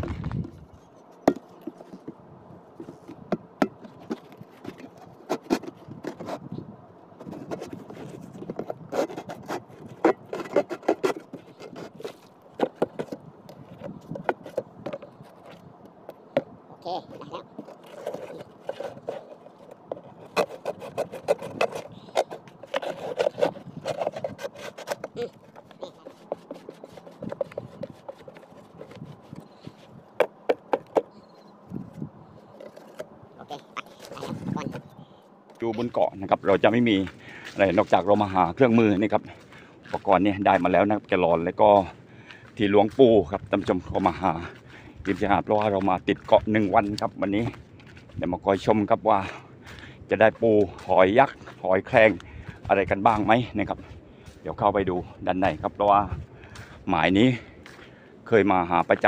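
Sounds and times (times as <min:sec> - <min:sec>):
knife sawing plastic: 0:04.0 - 0:06.5, 0:07.2 - 0:13.1, 0:17.1 - 0:29.9.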